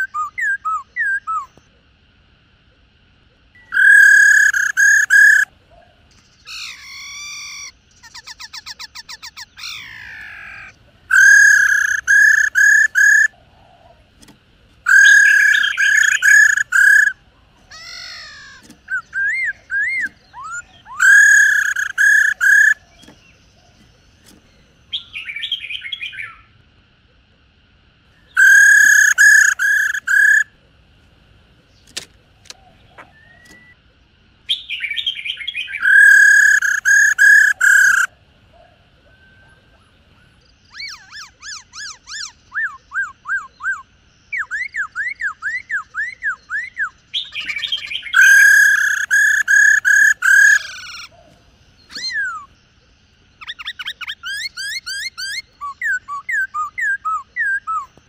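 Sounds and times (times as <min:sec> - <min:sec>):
bird whistles: 0:00.0 - 0:01.6, 0:03.6 - 0:05.5, 0:06.4 - 0:13.3, 0:14.9 - 0:17.2, 0:17.8 - 0:23.2, 0:28.2 - 0:30.5, 0:32.6 - 0:33.8, 0:34.5 - 0:38.1, 0:40.7 - 0:51.1, 0:51.8 - 0:52.6, 0:53.4 - 0:58.0
bird rattling trill: 0:03.6 - 0:05.5, 0:06.6 - 0:13.3, 0:14.2 - 0:24.6, 0:28.4 - 0:30.5, 0:35.8 - 0:38.1, 0:47.3 - 0:51.0
bird harsh chatter: 0:03.6 - 0:26.2, 0:28.2 - 0:30.6, 0:34.5 - 0:38.1, 0:40.6 - 0:43.8, 0:44.4 - 0:52.6.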